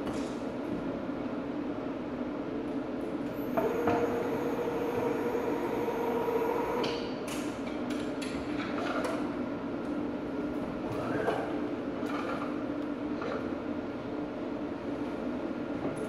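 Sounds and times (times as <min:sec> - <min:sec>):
machine mechanical hum: 0:00.0 - 0:16.0
high motor whine: 0:03.4 - 0:07.0.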